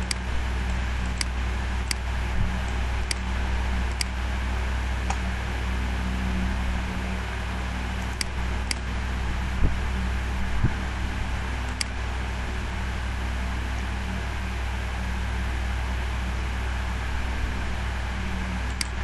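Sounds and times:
background hum and hiss: 0.0s - 19.0s
computer mouse clicks: 8.1s - 8.8s, 18.7s - 19.0s.

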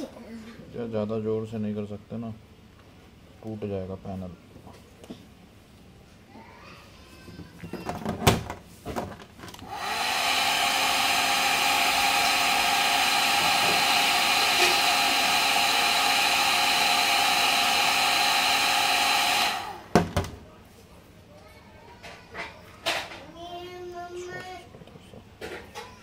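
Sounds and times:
hair dryer blowing: 9.6s - 20.2s.

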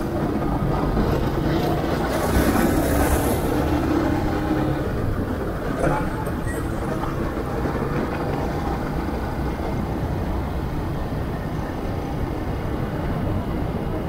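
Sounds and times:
wind and road noise: 0.0s - 14.0s.

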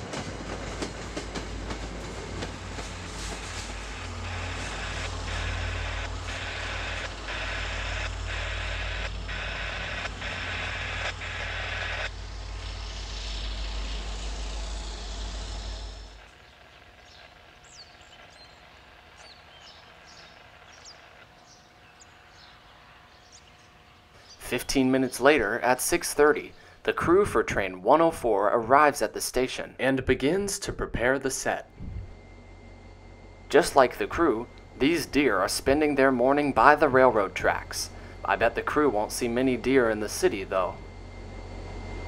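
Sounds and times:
diesel locomotive running: 0.0s - 42.0s
birds chirping: 12.0s - 25.6s
train bell ringing: 33.5s - 42.0s.

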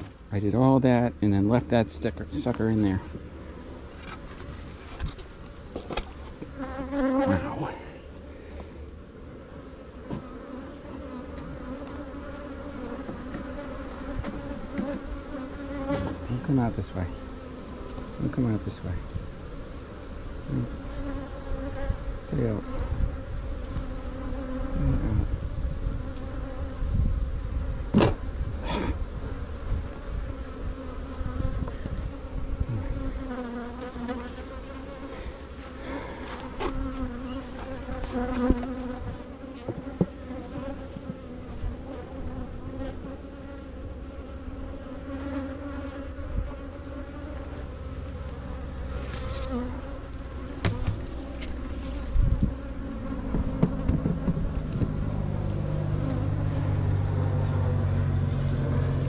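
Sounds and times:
swarm of bees buzzing: 5.3s - 59.0s
sharp knocks: 53.3s - 55.0s.

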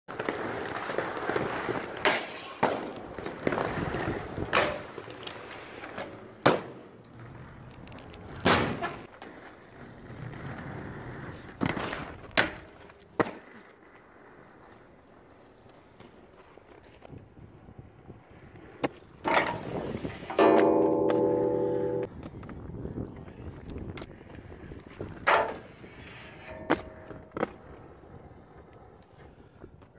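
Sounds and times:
skate wheels rolling on concrete: 0.1s - 29.9s
skates clacking on landing: 18.8s - 22.6s, 25.0s - 27.8s.

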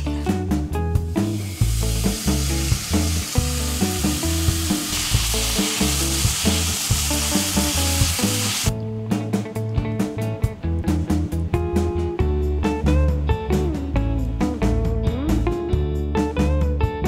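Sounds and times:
background music with bass line: 0.0s - 17.0s
meat sizzling in a pan: 1.2s - 8.7s.

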